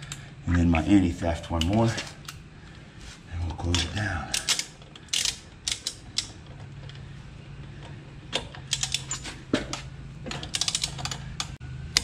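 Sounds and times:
socket ratchet clicking: 4.3s - 6.4s, 8.4s - 12.0s.

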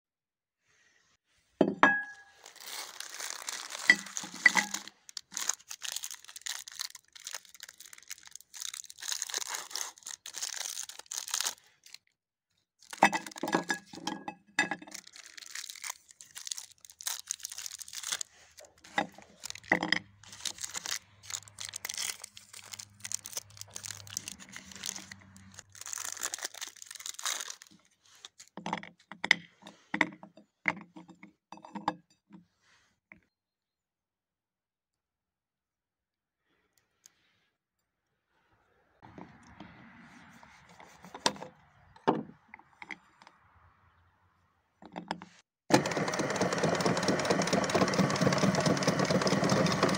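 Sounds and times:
plastic wrappers crinkling and tearing: 2.3s - 12.1s, 12.8s - 13.9s, 14.8s - 28.5s.

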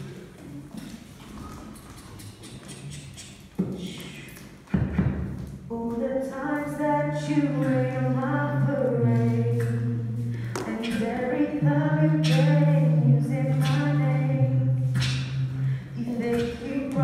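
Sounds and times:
beatboxed percussive hits: 1.6s - 5.2s, 9.5s - 11.2s, 13.5s - 14.0s, 14.8s - 17.0s
sung bass line: 6.4s - 17.0s.

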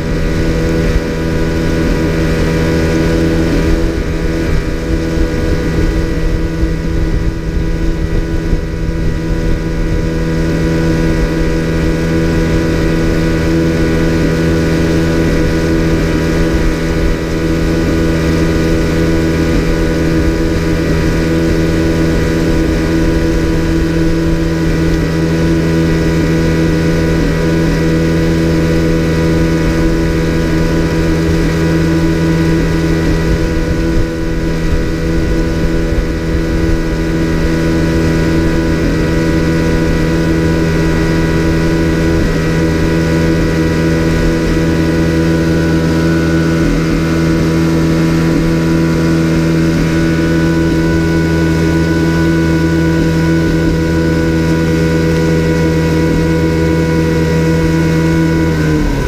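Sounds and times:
outboard motor running: 0.0s - 59.0s
water rushing along hull: 0.0s - 59.0s.

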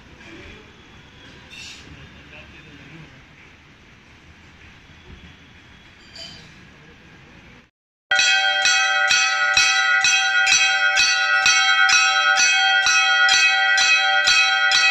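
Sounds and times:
temple bell ringing: 8.1s - 14.9s.

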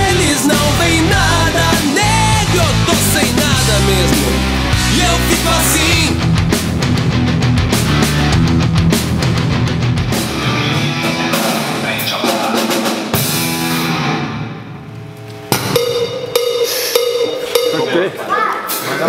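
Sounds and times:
heavy rock music: 0.0s - 14.8s.

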